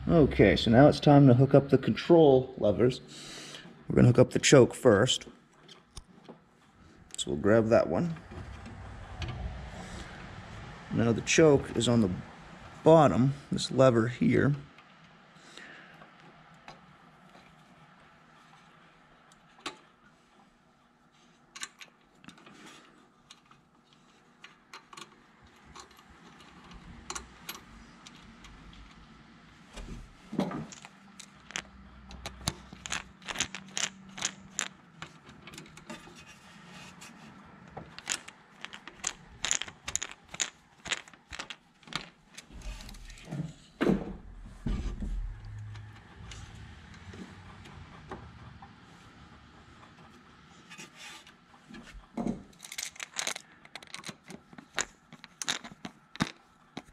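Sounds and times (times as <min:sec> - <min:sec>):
small metal clicks: 0:30.7 - 0:36.1, 0:37.9 - 0:43.2, 0:52.5 - 0:56.9.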